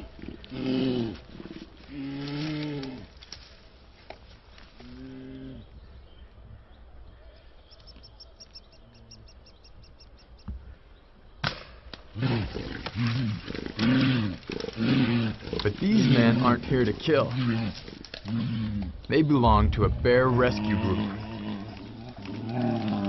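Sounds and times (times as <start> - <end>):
bear moaning growls: 0.0 - 3.2, 4.8 - 5.7, 12.1 - 19.0, 19.7 - 23.0
sharp crack: 11.4 - 12.1
bear bawling loudly: 12.2 - 18.9, 20.2 - 23.0.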